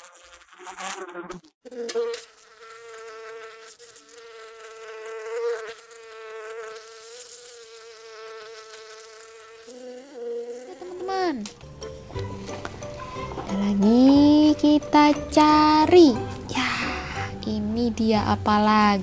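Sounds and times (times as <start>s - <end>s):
bees buzzing: 0.0s - 19.0s.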